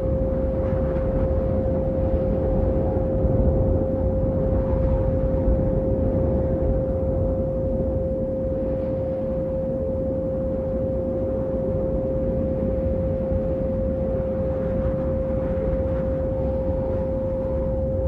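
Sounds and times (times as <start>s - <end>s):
low rumbling drone: 0.0s - 18.0s
steady pure tone: 0.0s - 18.0s
faint wavering high tone: 3.6s - 18.0s.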